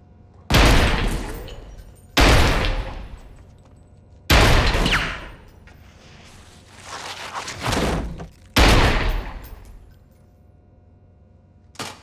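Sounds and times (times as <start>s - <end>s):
loud bangs with echoing rumble: 0.5s - 1.5s, 2.2s - 3.3s, 4.3s - 5.5s, 8.6s - 9.5s.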